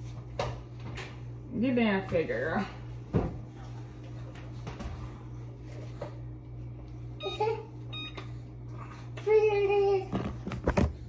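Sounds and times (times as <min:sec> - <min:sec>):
short electronic beeps: 0:07.2 - 0:08.2.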